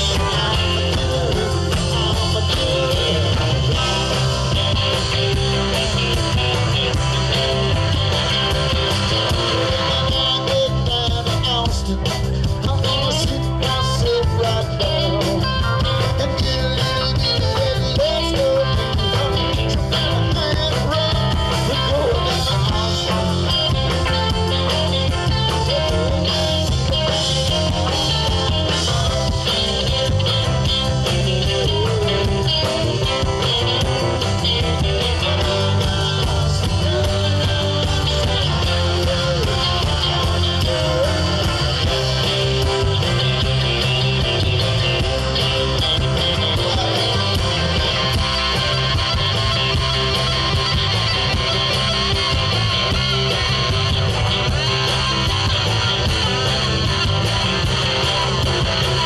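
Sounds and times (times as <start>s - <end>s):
live rock band playing: 0.0s - 59.0s
steel guitar sliding notes: 12.6s - 59.0s.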